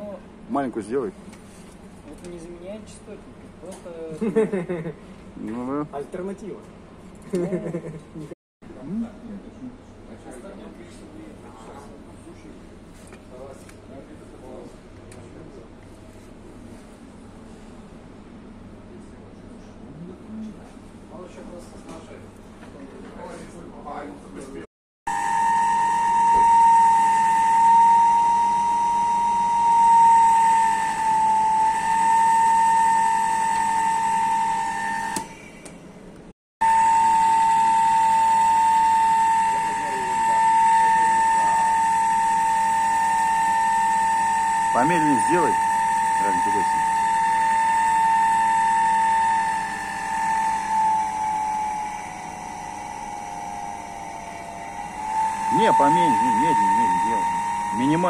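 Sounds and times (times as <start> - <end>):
electric motor whining: 25.1 - 35.4, 36.6 - 58.0.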